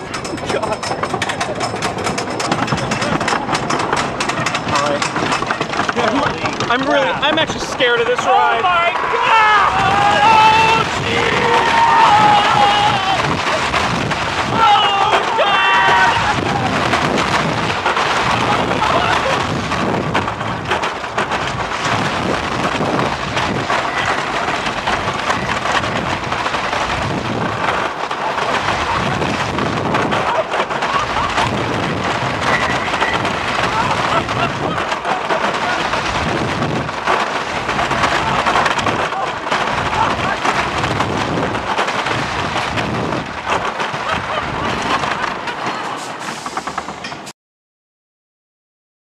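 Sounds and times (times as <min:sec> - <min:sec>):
sharp clicks of track: 0:00.0 - 0:08.2
wind on microphone: 0:00.0 - 0:47.2
roller coaster wheels clattering: 0:00.0 - 0:47.3.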